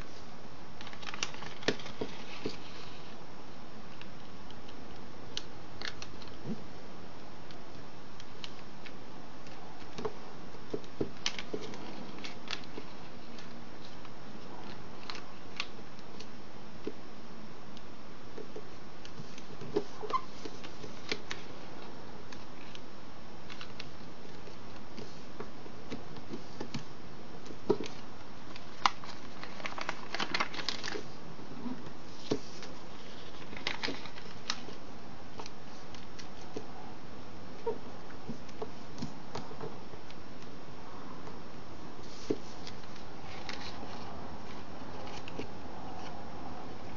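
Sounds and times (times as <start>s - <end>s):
background hiss: 0.0s - 46.9s
paper rustling and crinkling: 0.8s - 3.2s, 27.7s - 31.2s, 32.1s - 34.8s, 42.0s - 46.1s.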